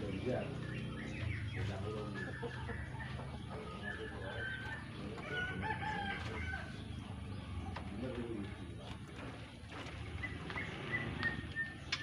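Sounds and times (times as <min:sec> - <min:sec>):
rooster crowing: 0:05.2 - 0:06.8
bird whistling: 0:10.2 - 0:12.0.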